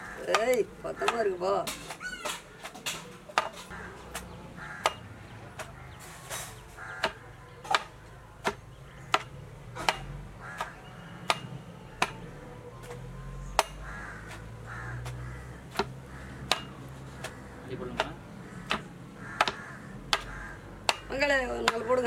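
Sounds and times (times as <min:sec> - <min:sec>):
pestle pounding in stone mortar: 0:15.0 - 0:22.0.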